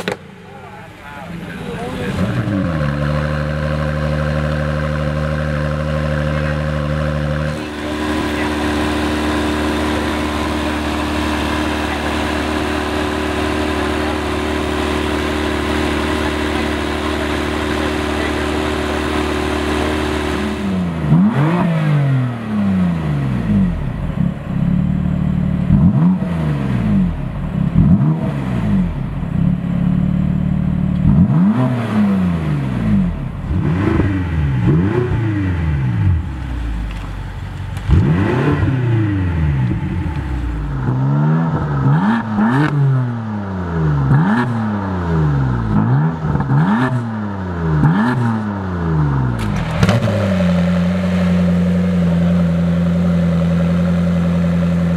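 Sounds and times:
exhaust pops: 0.0 - 0.3, 49.3 - 52.0
car engine revving: 0.0 - 54.9.

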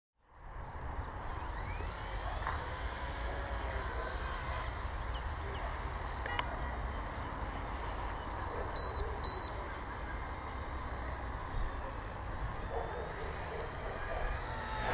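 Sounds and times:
toy helicopter motors buzzing: 0.6 - 14.9
short high beeps: 8.8 - 9.5.

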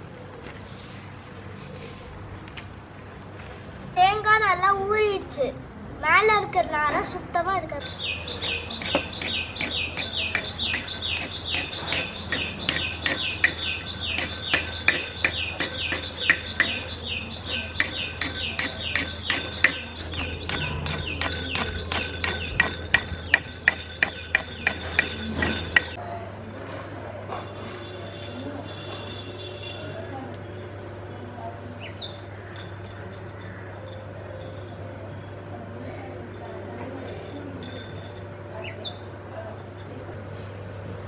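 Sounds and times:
knife scraping coconut shell: 8.2 - 16.9, 17.6 - 26.0.

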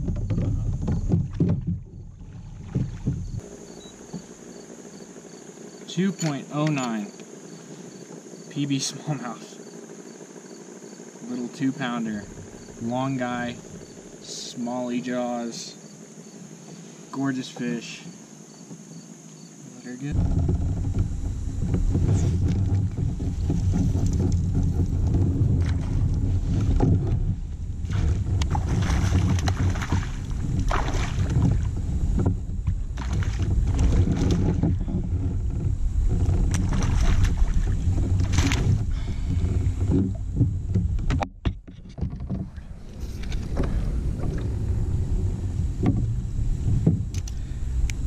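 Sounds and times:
wind buffeting microphone: 0.0 - 3.4, 20.1 - 41.3, 42.0 - 48.0
rustles and knocks from gear: 0.0 - 4.4, 20.1 - 44.6.

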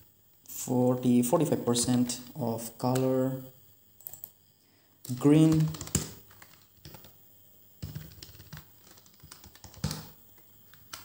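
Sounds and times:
computer keyboard typing: 5.1 - 7.2, 7.8 - 11.0.

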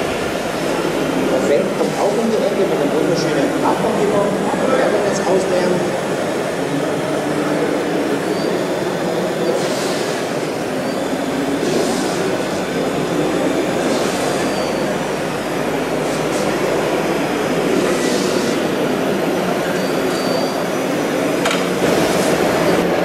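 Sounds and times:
short hydraulic hisses: 9.6 - 10.2.

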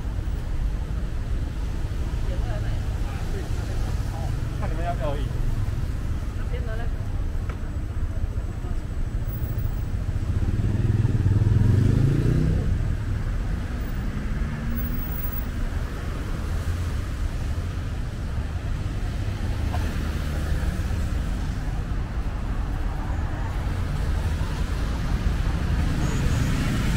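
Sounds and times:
rumble of passing vehicles: 0.0 - 26.9
vehicle engine accelerating past: 10.3 - 12.9.

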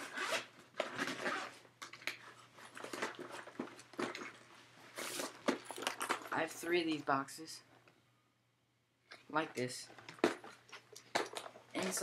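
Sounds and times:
plastic boxes clicking and knocking: 10.0 - 12.0.

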